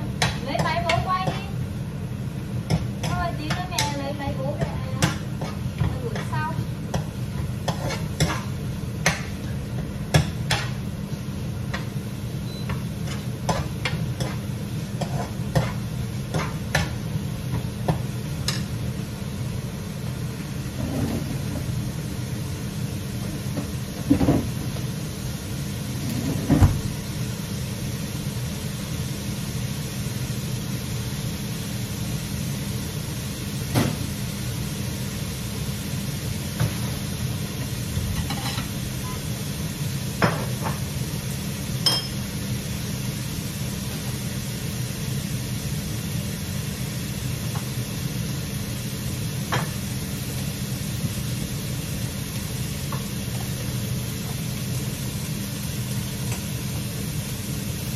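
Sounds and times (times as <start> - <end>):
utensils clinking on cookware: 41.8 - 42.2.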